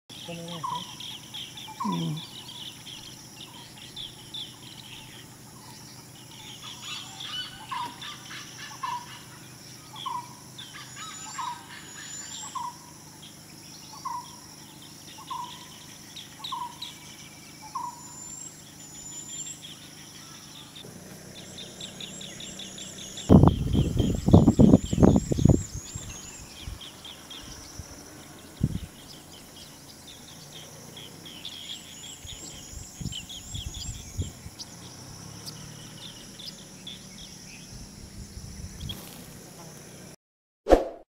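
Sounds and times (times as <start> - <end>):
lower falling bird call: 0.1 - 12.8, 15.1 - 37.6, 38.7 - 40.0
birds twittering: 0.1 - 40.2
loud low rumbling: 20.8 - 38.9.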